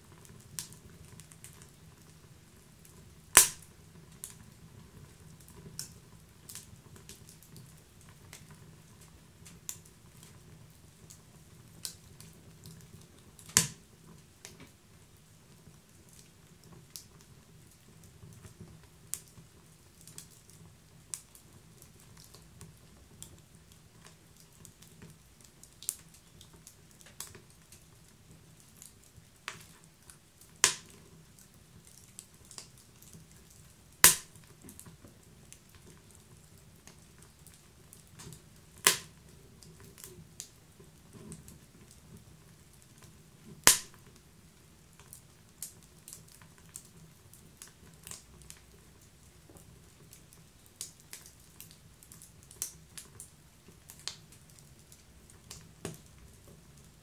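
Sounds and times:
wood fire crackling: 0.0 - 57.0
sharp fire pops: 3.3 - 3.7, 13.4 - 13.8, 30.6 - 31.0, 34.0 - 34.6, 38.2 - 39.2, 43.6 - 44.0.

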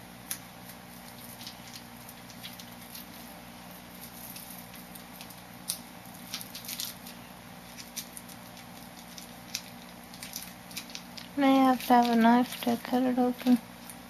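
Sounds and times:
steady low hum: 0.0 - 14.0
food package crinkling: 0.3 - 14.0.

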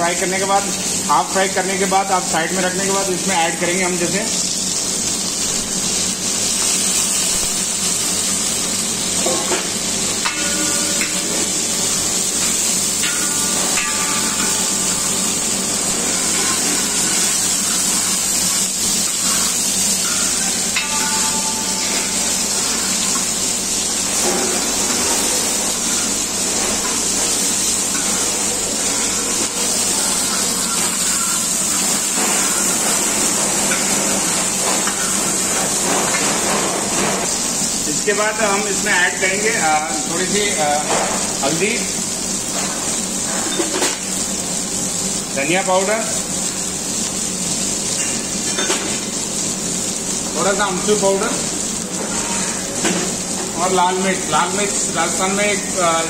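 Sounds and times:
vegetables sizzling in oil: 0.0 - 56.0
metal spatula stirring: 10.2 - 25.0.

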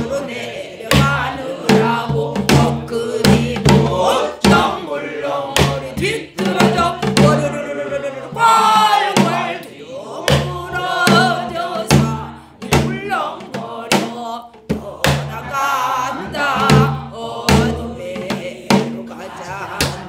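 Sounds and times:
barrel drum thuds: 0.9 - 4.8, 5.5 - 7.6, 8.3 - 9.6, 10.3 - 15.5, 16.3 - 19.0
woman singing in wavering voice: 10.4 - 12.7.

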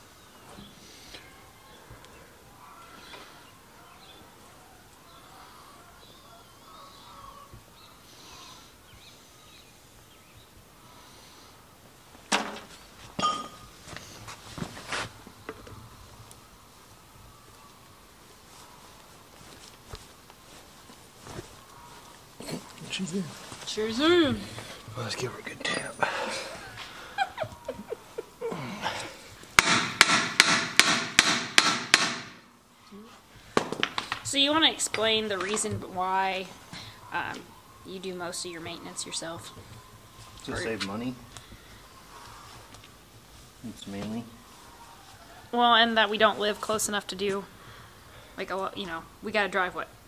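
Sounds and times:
hammer striking metal: 29.6 - 32.4.

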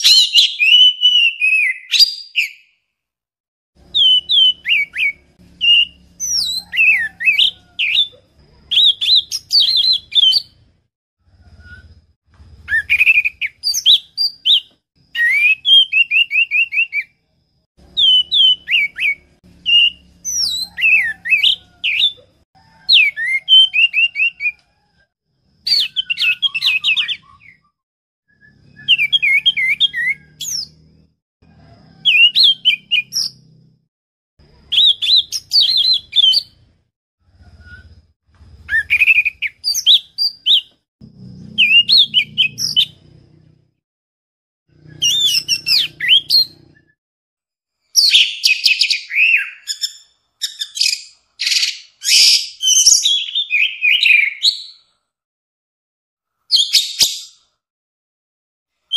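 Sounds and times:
thrush singing whistles and trills: 0.0 - 2.8, 3.9 - 8.1, 8.7 - 10.6, 12.6 - 17.2, 18.0 - 22.3, 22.9 - 24.6, 25.6 - 27.6, 28.3 - 30.8, 32.0 - 33.4, 34.7 - 36.6, 38.6 - 40.7, 41.6 - 43.0, 44.8 - 47.0, 48.0 - 54.8, 56.5 - 57.5.

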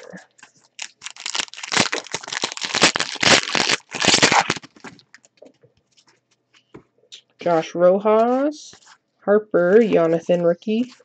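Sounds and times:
wrapper tearing and crinkling: 0.0 - 5.3.

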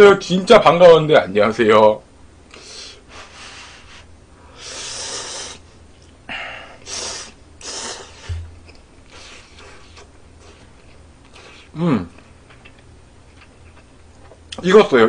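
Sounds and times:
noodles slurping: 6.9 - 11.7.

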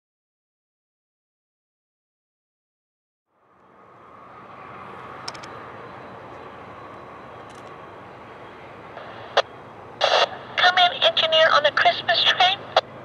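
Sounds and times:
diesel locomotive droning: 3.3 - 13.0.

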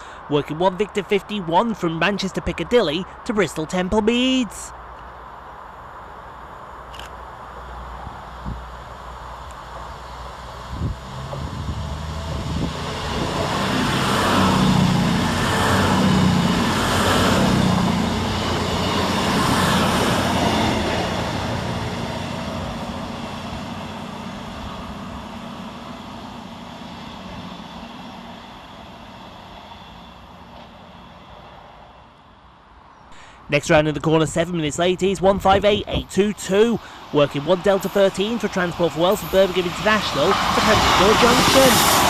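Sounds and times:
diesel train passing: 0.0 - 42.0
train wheels on rails: 7.5 - 32.2, 35.4 - 42.0.

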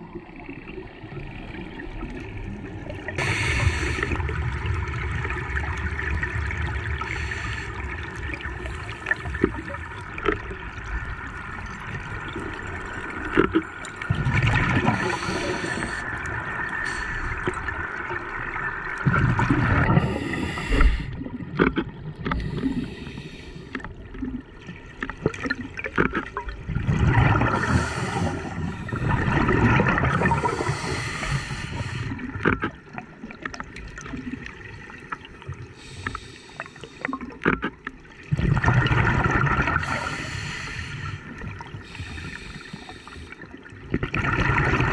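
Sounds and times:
bubbles gurgling: 0.0 - 23.2, 23.9 - 35.7, 37.0 - 40.5, 41.2 - 44.9
muffled rush of water: 0.0 - 44.9
diver breathing through regulator: 3.2 - 4.2, 14.8 - 16.1, 16.8 - 17.4, 19.9 - 21.2, 22.3 - 23.8, 27.4 - 29.4, 30.2 - 32.2, 35.8 - 37.1, 39.8 - 43.5.

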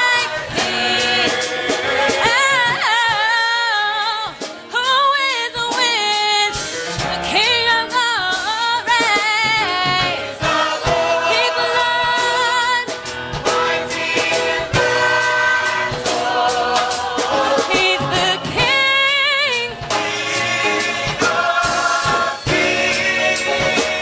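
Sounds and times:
gospel choir singing: 0.0 - 4.7, 7.6 - 24.0
steady beat: 10.0 - 24.0.

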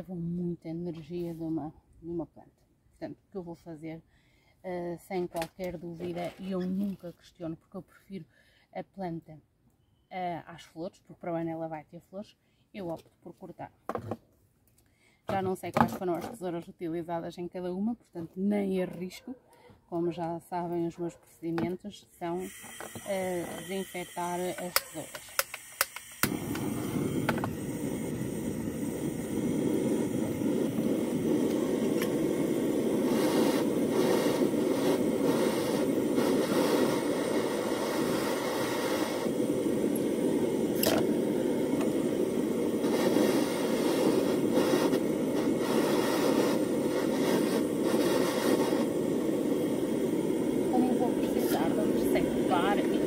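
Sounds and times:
gas blowtorch burning: 22.4 - 53.0.

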